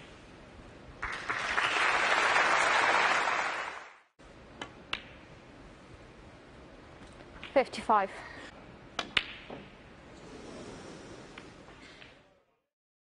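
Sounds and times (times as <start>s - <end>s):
audience applauding: 1.0s - 4.0s.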